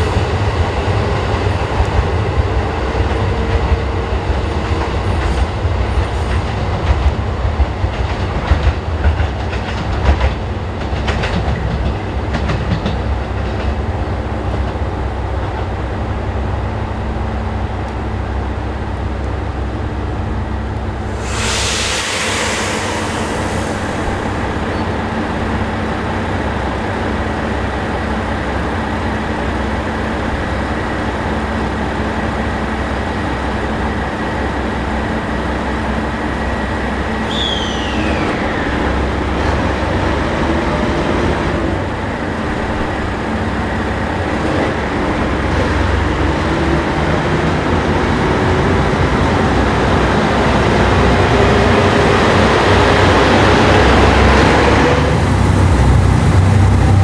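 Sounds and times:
train hum: 0:00.0 - 0:57.0
short falling squeal: 0:37.2 - 0:39.0.

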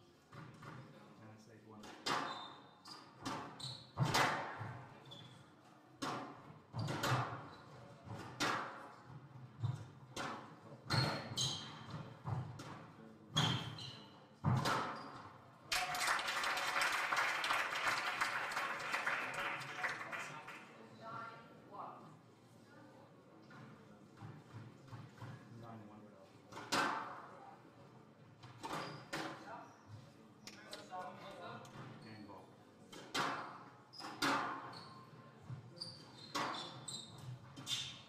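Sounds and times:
shoe squeaks on wooden floor: 0:02.3 - 0:04.0, 0:10.9 - 0:12.0, 0:13.4 - 0:14.2, 0:28.7 - 0:29.1, 0:35.7 - 0:38.0
crowd applauding: 0:15.7 - 0:20.8.

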